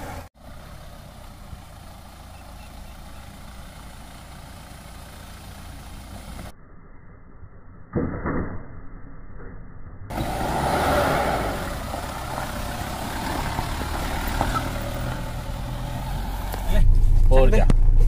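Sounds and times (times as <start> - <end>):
diesel engine running at low revs: 0.0 - 6.5, 10.1 - 18.0.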